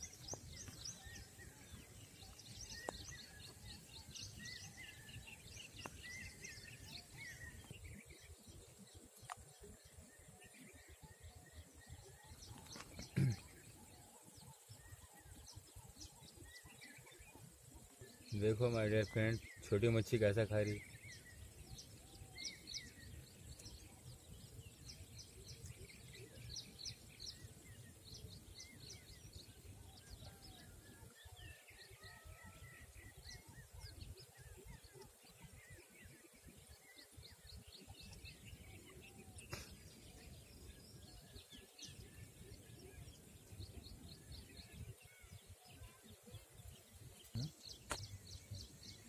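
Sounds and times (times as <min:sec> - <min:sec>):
small birds chirping: 0:00.0 - 0:49.0
sharp click: 0:47.3 - 0:48.1.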